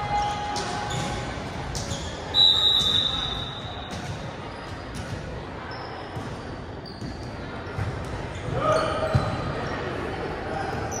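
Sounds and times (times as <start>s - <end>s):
sneakers squeaking: 0.0s - 9.8s
crowd chatter: 0.0s - 11.0s
referee's whistle: 2.3s - 4.0s.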